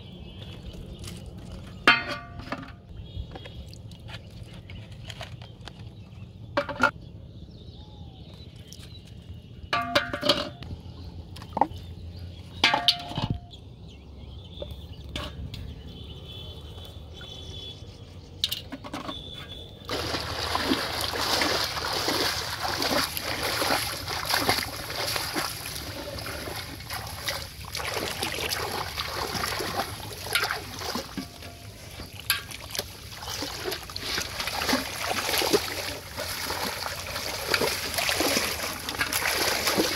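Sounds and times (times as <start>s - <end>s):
bottles knocking against metal pot: 1.8s - 2.8s, 9.7s - 10.6s, 12.6s - 13.5s
water sloshing and splashing: 18.4s - 39.9s.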